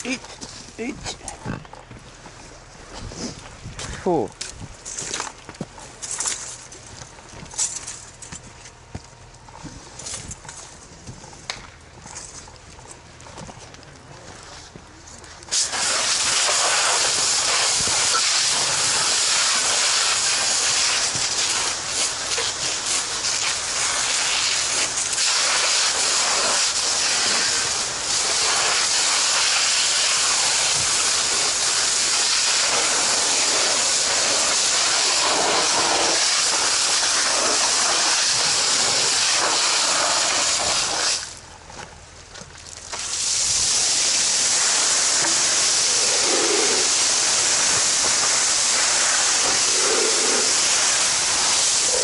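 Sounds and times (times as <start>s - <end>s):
hose water jet hissing on embers: 15.4s - 41.4s, 42.8s - 52.0s.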